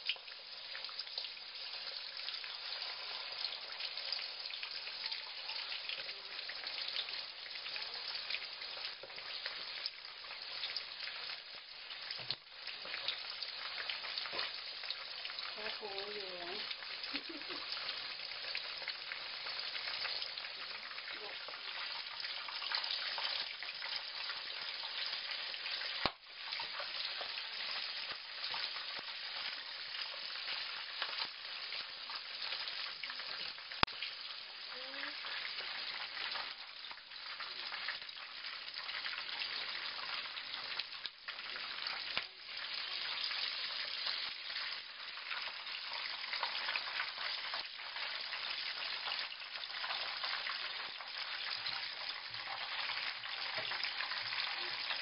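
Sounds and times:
chicken sizzling in hot oil: 0.0s - 55.0s.

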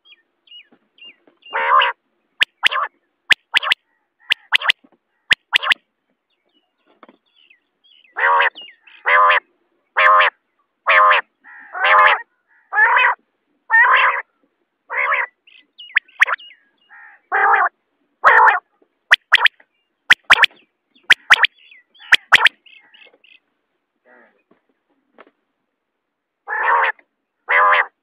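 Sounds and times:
quail calling: 1.5s - 5.8s, 8.1s - 9.4s, 10.0s - 10.3s, 10.9s - 14.2s, 14.9s - 19.5s, 20.1s - 22.9s.

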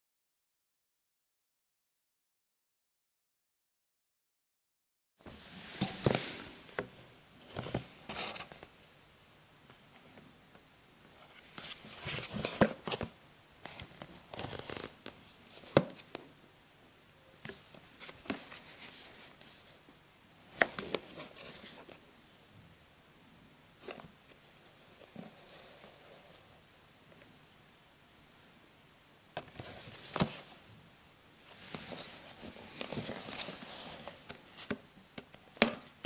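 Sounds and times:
plastic box rustling and crinkling: 11.5s - 16.1s, 29.4s - 30.6s, 31.5s - 34.9s.

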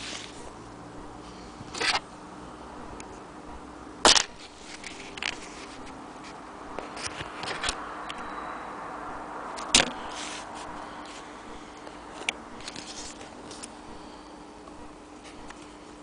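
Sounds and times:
faint steady hum: 0.0s - 16.0s
fabric rustling: 10.0s - 11.3s.

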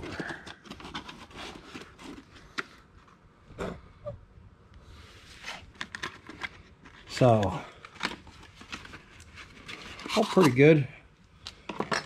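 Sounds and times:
cardboard box rustling: 0.0s - 2.4s.

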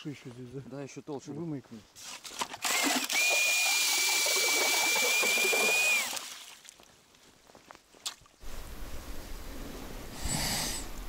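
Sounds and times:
cordless drill motor whine: 2.6s - 6.1s.

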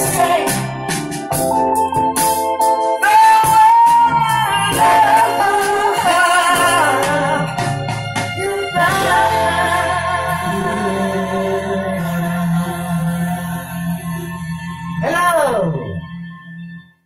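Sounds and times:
woman singing into microphone: 0.0s - 0.6s, 3.0s - 7.5s, 8.4s - 14.6s
backing music: 0.0s - 17.0s.

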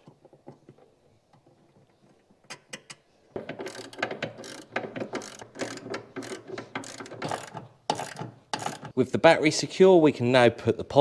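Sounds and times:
socket ratchet clicking: 2.8s - 8.9s.

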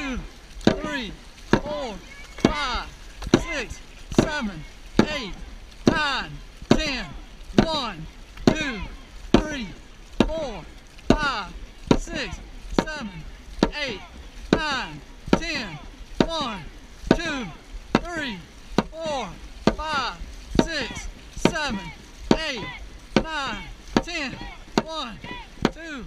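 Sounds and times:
paddles knocking on boat: 0.0s - 26.0s
paddles splashing through water: 0.0s - 26.0s.

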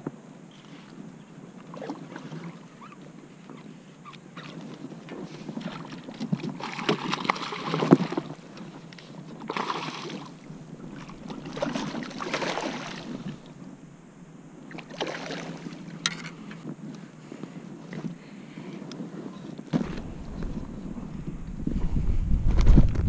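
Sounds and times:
water splashing: 5.6s - 16.2s.

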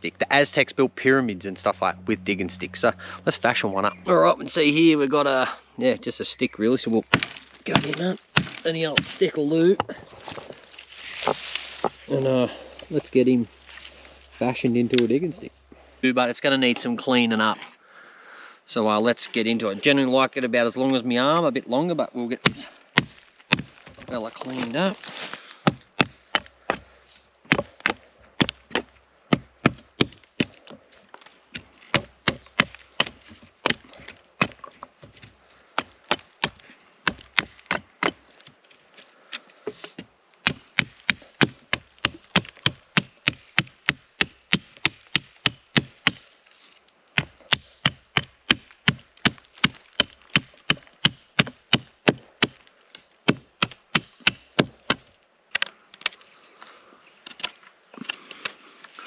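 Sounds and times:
hatchet chopping wood: 7.1s - 10.0s, 22.4s - 24.0s, 25.6s - 26.9s, 27.5s - 30.6s, 31.5s - 38.3s, 39.7s - 46.2s, 47.2s - 56.2s.

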